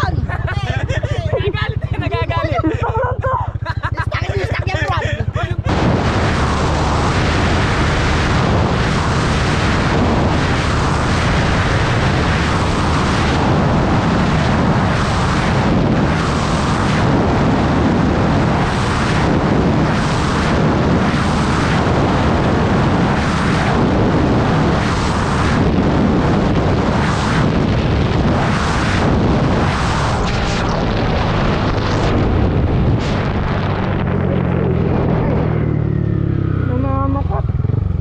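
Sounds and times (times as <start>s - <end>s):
scooter engine: 0.0s - 9.9s, 33.9s - 38.0s
wind buffeting on microphone: 0.0s - 38.0s.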